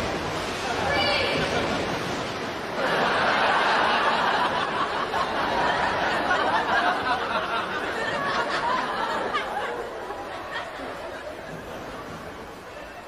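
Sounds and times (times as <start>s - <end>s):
studio audience laughing: 2.8s - 11.8s.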